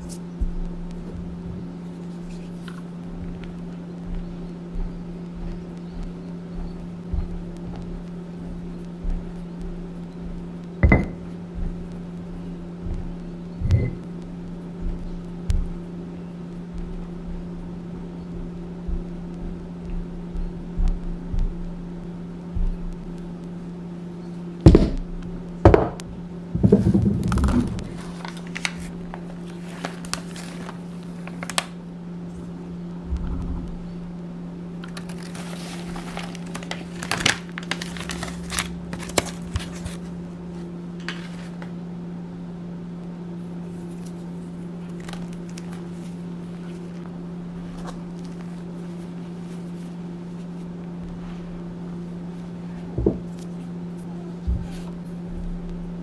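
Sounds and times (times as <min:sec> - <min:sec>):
steady low hum: 0:00.0 - 0:56.0
stone pestle knocking in mortar: 0:10.8 - 0:11.2
chalk chunks crumbling: 0:26.6 - 0:31.8, 0:34.8 - 0:41.7, 0:44.8 - 0:47.1.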